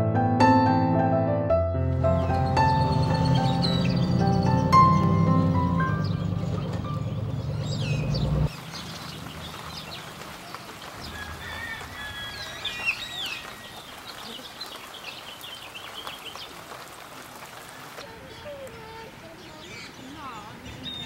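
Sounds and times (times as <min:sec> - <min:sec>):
music: 0:00.0 - 0:07.5
birds chirping: 0:01.8 - 0:21.0
steady outdoor hiss: 0:07.0 - 0:21.0.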